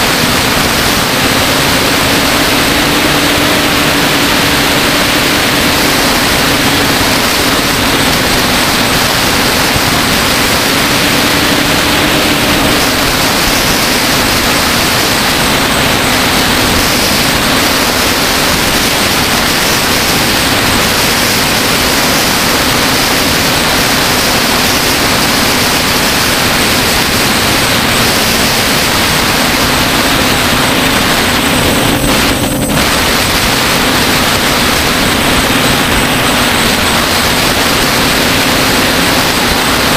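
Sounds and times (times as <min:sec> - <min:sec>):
drone motors and propellers: 0:00.0 - 0:39.9.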